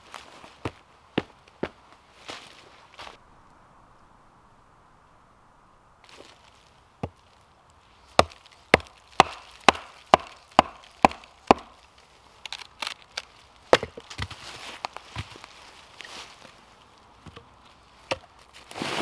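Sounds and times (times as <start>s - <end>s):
wood chopping strikes: 8.1s - 11.8s, 13.7s - 14.4s.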